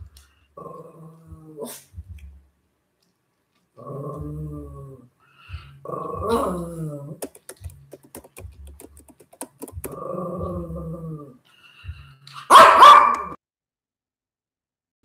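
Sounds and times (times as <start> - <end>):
small dogs growling: 0.6 - 1.9, 3.8 - 5.1, 5.8 - 7.2, 9.9 - 11.4
dog barking harshly: 12.4 - 13.4.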